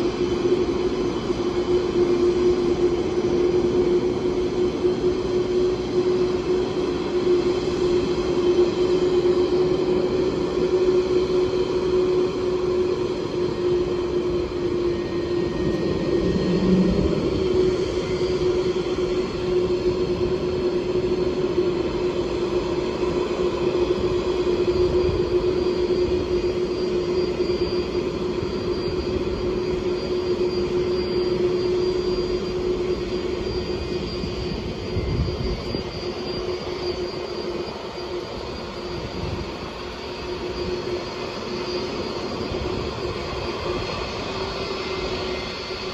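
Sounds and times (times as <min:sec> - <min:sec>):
jet engines at taxi power: 0:00.0 - 0:45.9.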